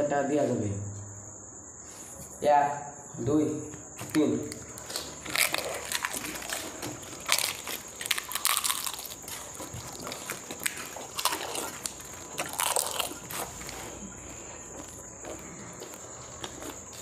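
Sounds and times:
crisp shells crunching chewed: 4.0s - 17.0s.

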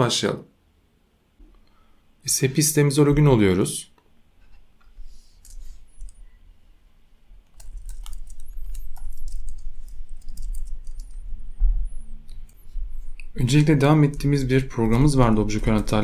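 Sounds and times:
typing on computer keyboard: 7.5s - 11.3s.

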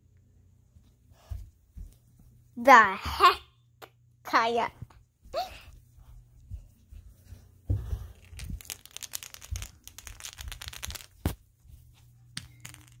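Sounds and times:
crackling: 8.2s - 11.4s.

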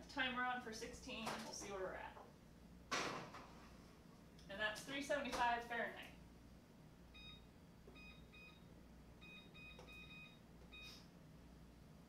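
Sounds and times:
faint electronic keypad beeps: 7.2s - 8.6s, 9.2s - 11.0s.

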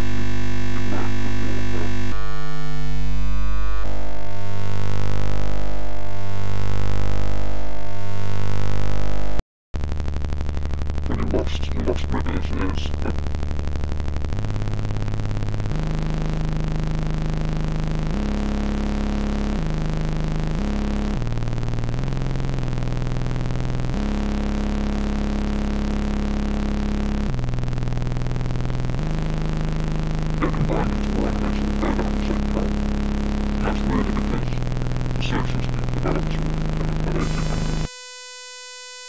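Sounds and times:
low synthesized humming tones: 9.8s - 24.0s, 25.3s - 38.0s
rough scratchy synth layer: 30.4s - 37.9s.

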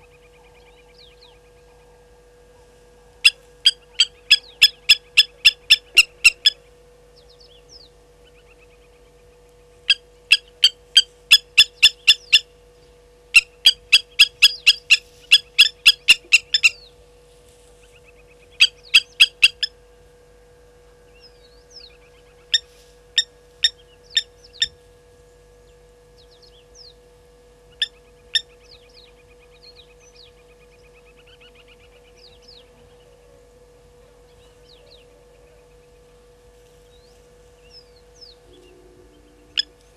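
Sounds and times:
lapwing metallic alarm calls: 3.2s - 6.7s, 9.8s - 12.6s, 13.3s - 17.0s, 17.9s - 19.8s, 21.2s - 24.8s, 27.7s - 33.1s, 37.0s - 39.9s.

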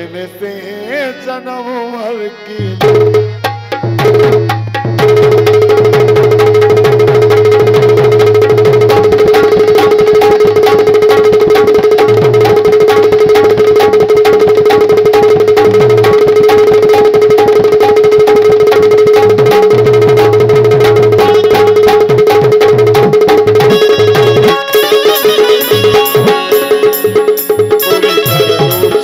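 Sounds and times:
fast hand-drum rhythm: 2.7s - 29.0s
repeating bass figure: 2.8s - 29.0s
held drone note: 6.8s - 22.6s, 23.6s - 29.0s.

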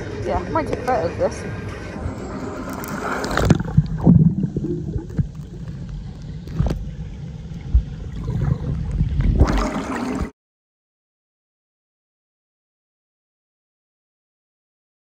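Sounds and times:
muffled underwater sloshing: 1.6s - 10.3s
water splashing: 2.0s - 10.3s
underwater knocks: 3.4s - 6.8s.

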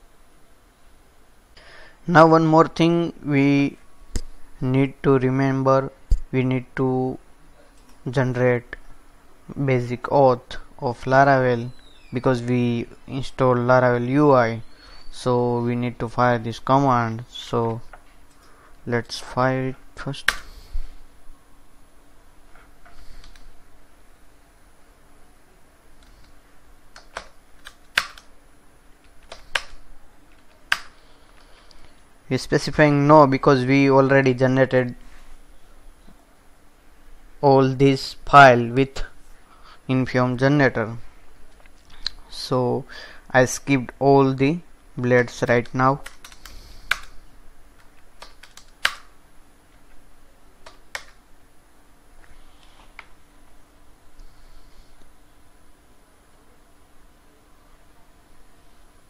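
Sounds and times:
computer keyboard keys clicking: 45.6s - 47.1s, 48.2s - 49.0s, 50.6s - 51.2s.

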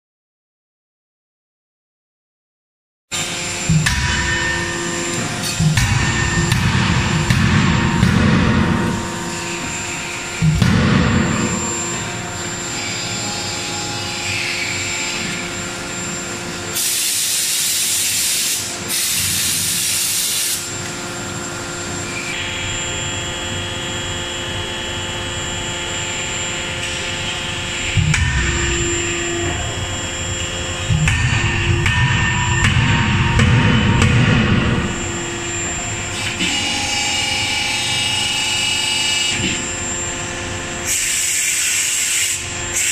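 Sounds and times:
steady machine hum: 3.1s - 40.9s
forging hammer heavy blows: 3.7s - 9.8s, 27.9s - 30.2s, 30.8s - 35.6s.

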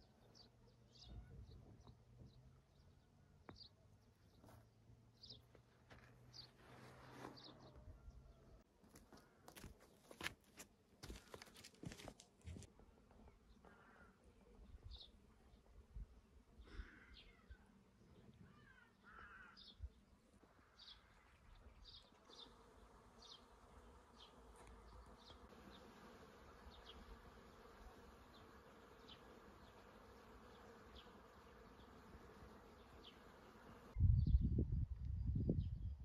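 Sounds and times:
fly buzzing: 22.2s - 34.0s.

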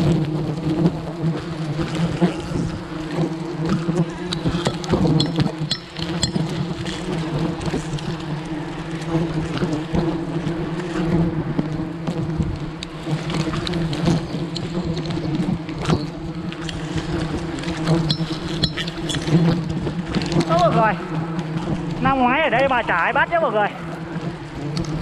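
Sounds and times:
bee swarm buzzing: 0.0s - 25.0s
clicks and rustles: 3.7s - 8.2s.

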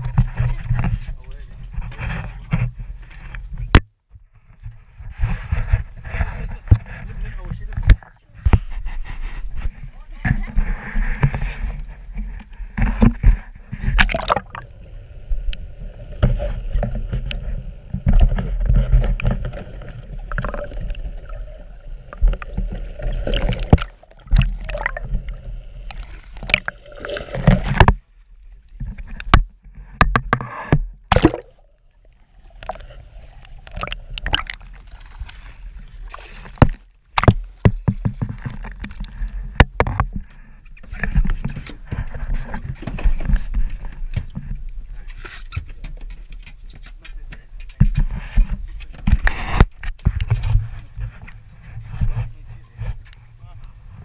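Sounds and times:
seawater sloshing and splashing: 13.0s - 29.4s, 31.1s - 39.6s.

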